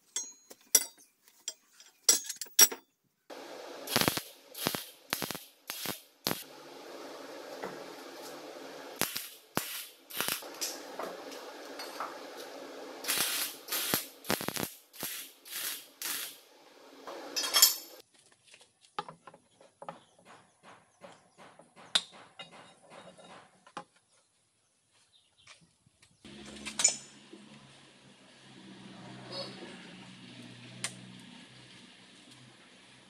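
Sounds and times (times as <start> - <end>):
welding arc crackling: 3.3 - 18.0.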